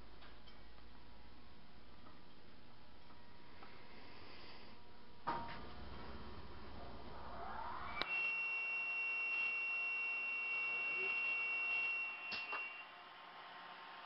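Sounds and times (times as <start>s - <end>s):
miter saw whining: 6.8s - 14.0s.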